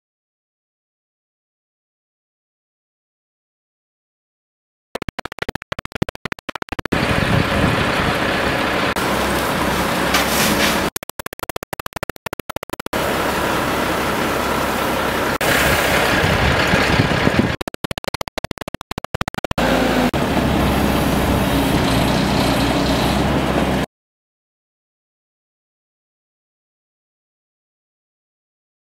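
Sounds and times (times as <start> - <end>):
engine running: 6.8 - 10.2, 12.7 - 17.8, 19.3 - 23.8.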